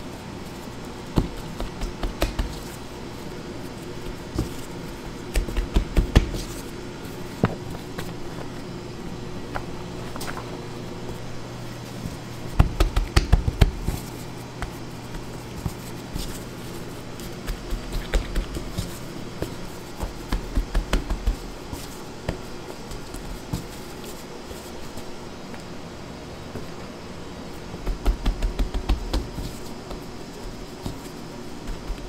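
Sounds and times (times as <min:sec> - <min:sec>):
quick taps and soft thumps: 0:01.2 - 0:02.6, 0:27.8 - 0:32.0.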